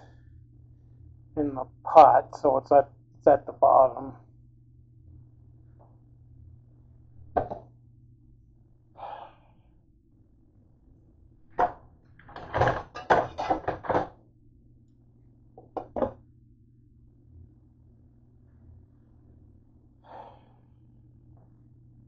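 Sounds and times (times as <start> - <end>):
steady low hum: 0.0 - 22.0
glass lid knocking on pot: 7.4 - 7.6, 15.7 - 16.2
metal cookware clattering: 12.4 - 14.1.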